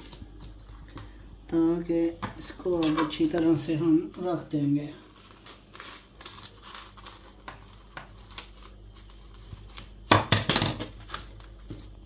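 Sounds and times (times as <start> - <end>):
cling film crinkling: 3.2 - 10.1, 10.8 - 12.0.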